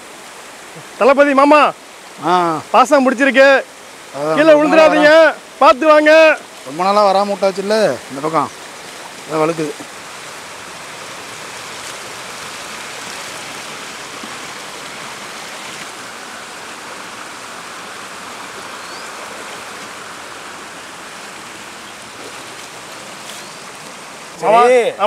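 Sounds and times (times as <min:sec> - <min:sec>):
flowing water rushing: 0:00.0 - 0:25.0.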